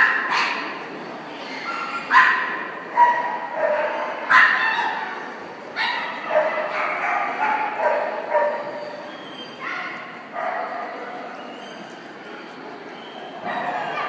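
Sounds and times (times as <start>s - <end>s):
dog barking in high yips: 1.8s - 5.0s, 5.8s - 10.8s.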